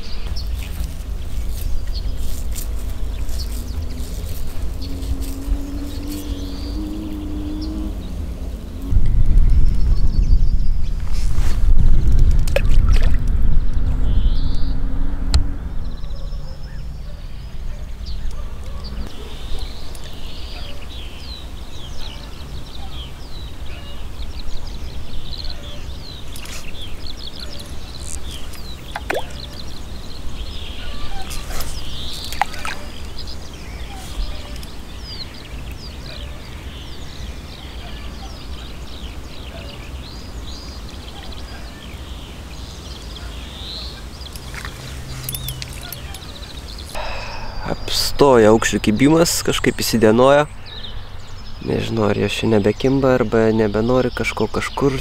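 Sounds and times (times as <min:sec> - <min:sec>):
steady low rumble: 0:00.0 - 0:37.5
birds chirping: 0:00.0 - 0:55.0.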